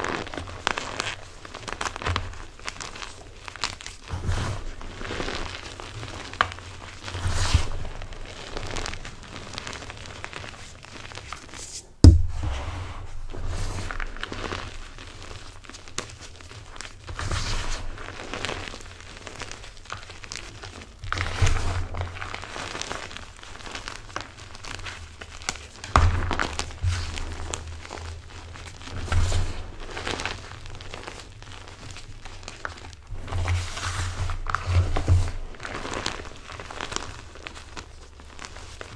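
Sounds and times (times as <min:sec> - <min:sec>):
chalk crunching and crumbling: 0:00.0 - 0:38.9
loud sharp knock: 0:12.0 - 0:12.7
soft thumps: 0:12.0 - 0:13.2.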